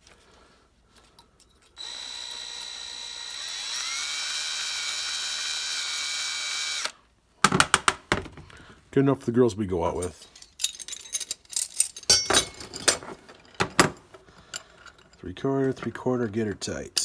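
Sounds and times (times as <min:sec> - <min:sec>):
cordless drill motor whine: 0:01.8 - 0:07.0.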